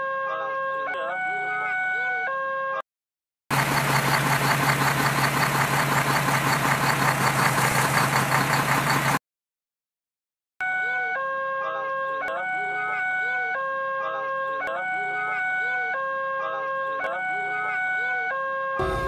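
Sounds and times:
loud rattling vehicle noise: 0:03.5 - 0:09.2, 0:18.8 - 0:19.0.

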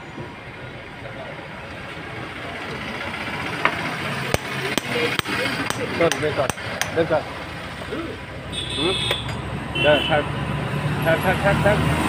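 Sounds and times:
hammer striking metal: 0:04.3 - 0:07.1.

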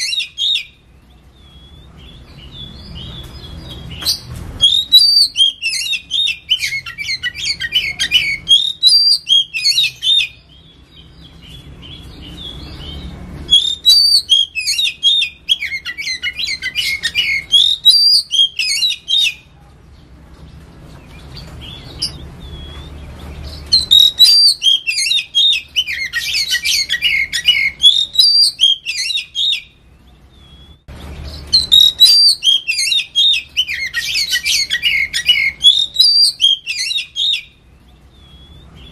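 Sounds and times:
bird singing rapid high notes: 0:00.0 - 0:19.5, 0:21.1 - 0:38.9.

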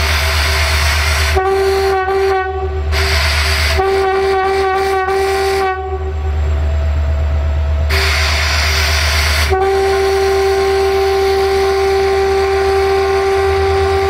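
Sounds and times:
locomotive engine low rumble: 0:00.0 - 0:14.0
locomotive horn short toots: 0:01.2 - 0:06.3, 0:07.9 - 0:14.0.

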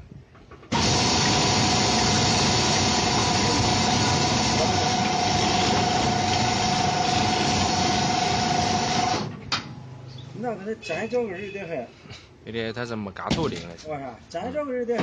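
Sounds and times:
cutting disc motor whining: 0:00.7 - 0:09.3.

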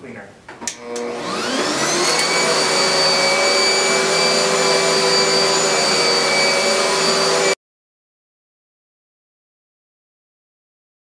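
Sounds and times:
vacuum cleaner running: 0:00.7 - 0:07.6.

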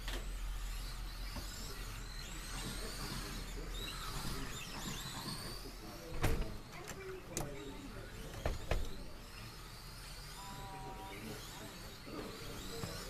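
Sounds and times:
electric rc cars whining: 0:00.0 - 0:13.0.

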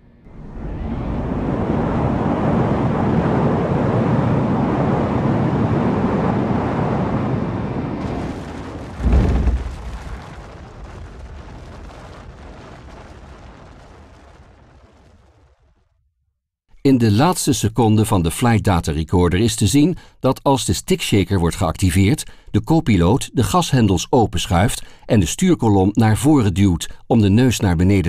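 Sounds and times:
airliner crash noise: 0:00.0 - 0:14.8
heavy low thump: 0:08.0 - 0:11.7.

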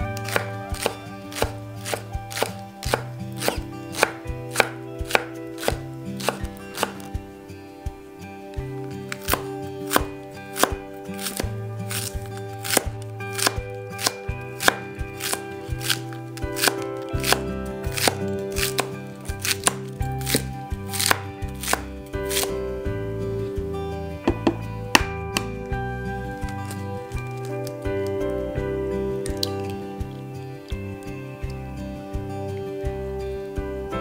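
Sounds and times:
background music: 0:00.0 - 0:34.0
knife chopping on wooden board: 0:00.2 - 0:07.1, 0:09.1 - 0:16.0, 0:16.6 - 0:22.5, 0:24.3 - 0:25.5.

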